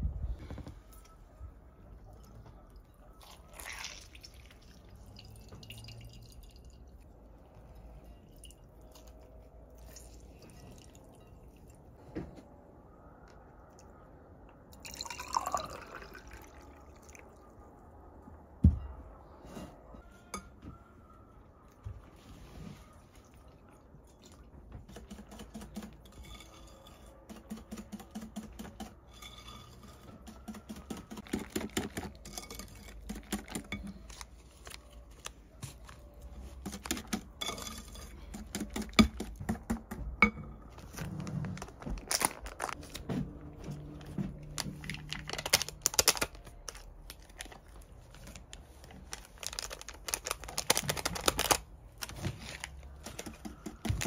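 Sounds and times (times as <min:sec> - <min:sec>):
paper sachet tearing: 0:41.5 - 0:43.0, 0:44.6 - 0:52.8.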